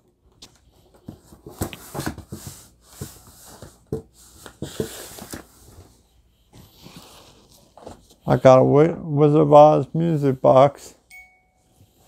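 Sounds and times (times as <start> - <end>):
rummaging through cardboard box: 0.7 - 8.2.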